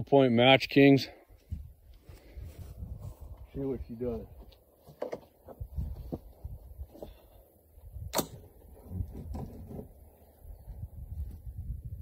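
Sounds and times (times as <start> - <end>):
low wind rumble: 1.4 - 4.4, 5.5 - 12.0
suppressed rifle shot: 8.1 - 8.5.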